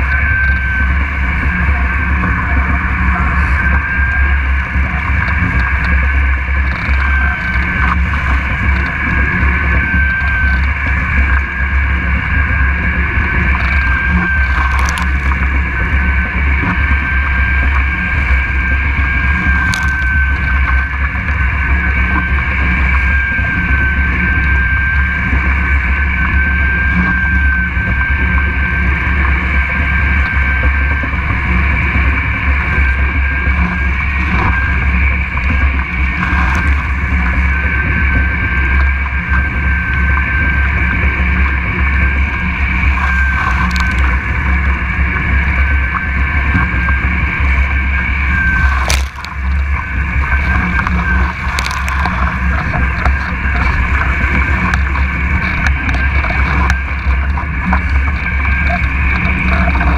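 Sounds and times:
wind buffeting camera: 0:00.0 - 0:59.9
water rushing past: 0:32.5 - 0:59.9.

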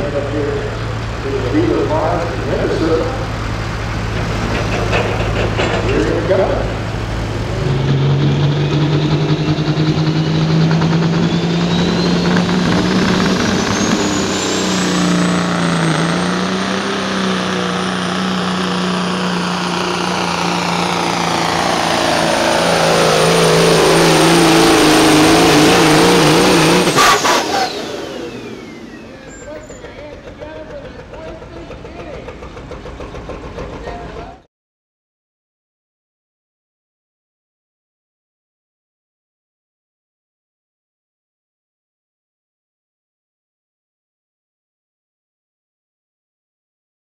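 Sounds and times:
diesel truck engine under load: 0:00.0 - 0:34.5
turbocharger whistle: 0:07.6 - 0:30.2
engine cracks: 0:26.9 - 0:34.4.

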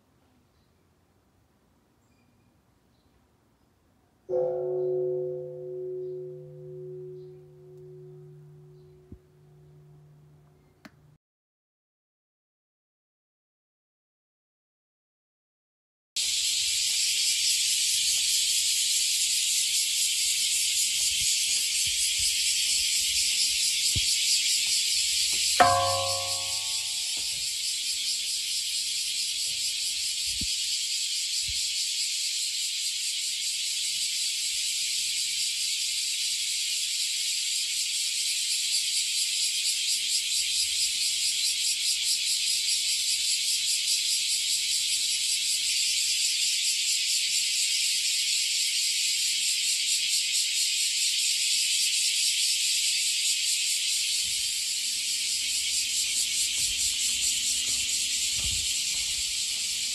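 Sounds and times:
cicadas buzzing: 0:16.2 - 0:59.9.

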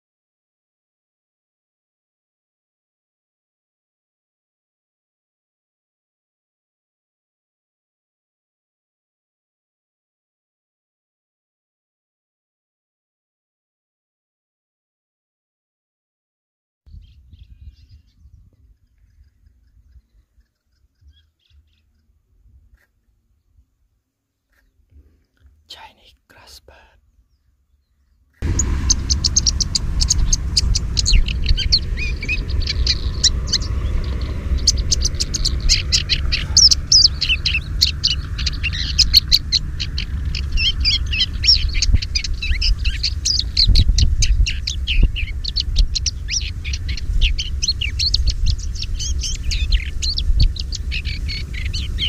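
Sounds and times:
small birds chirping: 0:16.9 - 0:52.0
low microphone rumble: 0:28.4 - 0:52.0.

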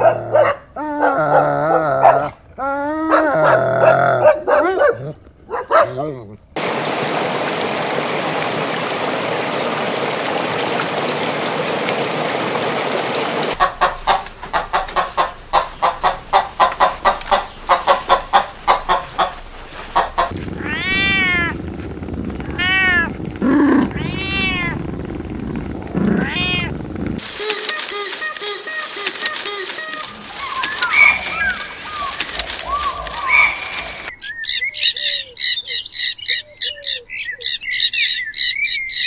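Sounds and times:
water rushing: 0:06.6 - 0:34.1
hens clucking: 0:13.5 - 0:20.9
cat meowing: 0:20.6 - 0:21.6, 0:22.5 - 0:23.1, 0:23.9 - 0:24.8, 0:26.1 - 0:26.7.

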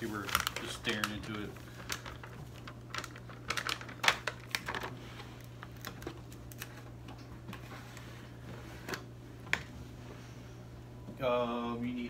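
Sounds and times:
paper packets crinkling: 0:00.0 - 0:07.0.

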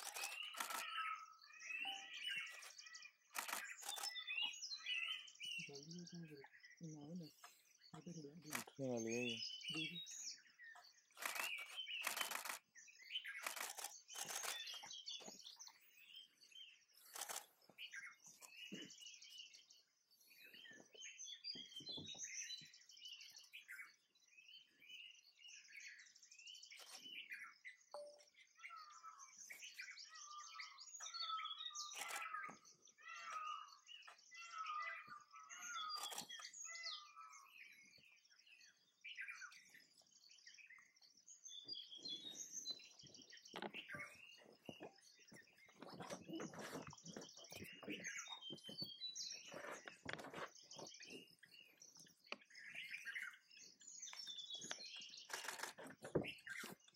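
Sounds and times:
sharp clicks: 0:00.0 - 0:00.9, 0:11.2 - 0:12.6
birds chirping and trilling: 0:00.0 - 0:56.9
repeated mid-pitched bird calls: 0:00.0 - 0:56.9.

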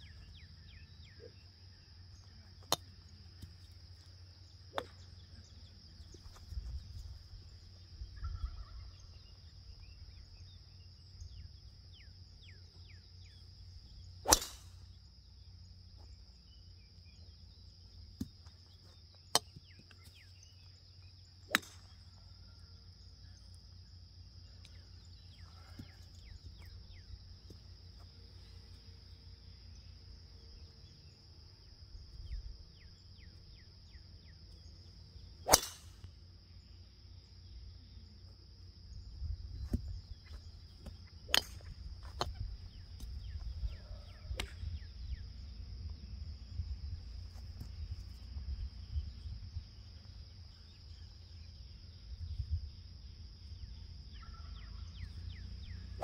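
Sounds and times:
faint bird chirps: 0:00.0 - 0:56.0
golf ball strike cracks: 0:14.2 - 0:14.9, 0:21.5 - 0:21.9, 0:35.4 - 0:36.2, 0:40.9 - 0:42.4.

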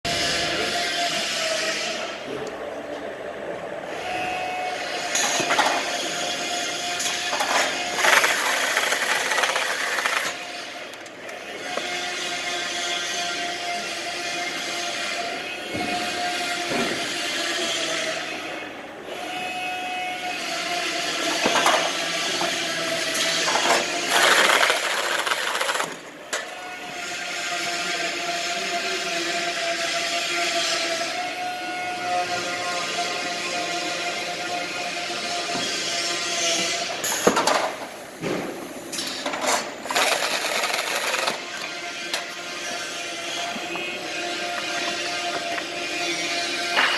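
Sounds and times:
carton taping machine running: 0:07.0 - 0:12.0, 0:21.2 - 0:26.6, 0:39.2 - 0:42.5
mechanical clatter: 0:39.0 - 0:42.2.

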